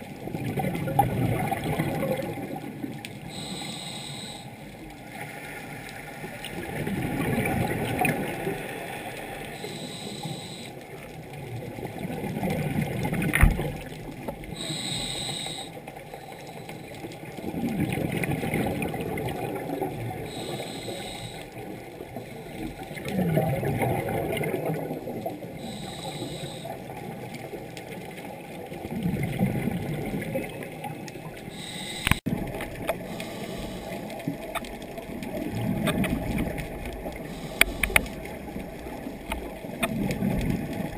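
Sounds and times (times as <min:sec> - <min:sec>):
exhaled air bubbling: 0:00.0 - 0:05.0, 0:06.3 - 0:27.8, 0:28.4 - 0:40.9
regulator inhale hiss: 0:03.3 - 0:05.6, 0:08.4 - 0:10.9, 0:14.5 - 0:17.1, 0:20.2 - 0:23.1, 0:25.6 - 0:26.9, 0:31.5 - 0:32.2, 0:33.0 - 0:34.4, 0:37.2 - 0:38.3
sharp click: 0:32.0 - 0:32.2.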